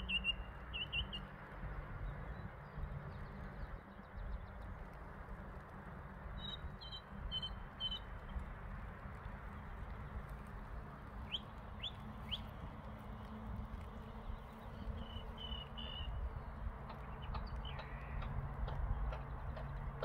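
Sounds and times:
birds chirping: 0:06.4 - 0:08.4, 0:11.2 - 0:20.0.

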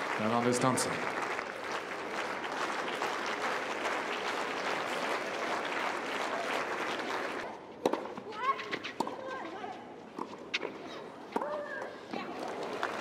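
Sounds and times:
crowd clapping: 0:00.0 - 0:07.5, 0:12.2 - 0:13.0.

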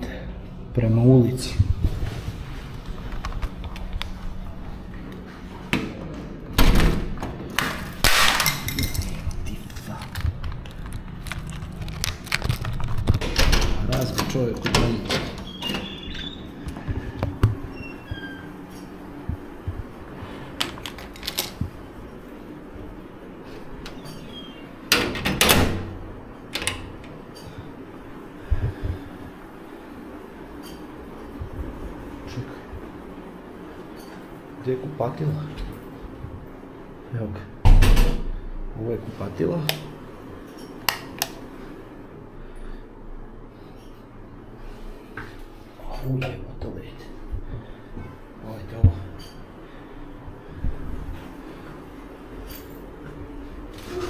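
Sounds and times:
key working a door lock: 0:20.6 - 0:21.6.

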